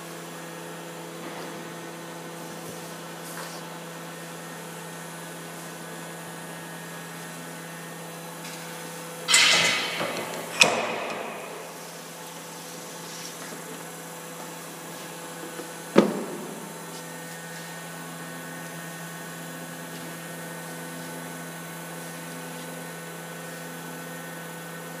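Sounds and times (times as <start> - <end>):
welding machine electrical hum: 0.0 - 25.0
sharp metallic clunk: 9.3 - 12.0.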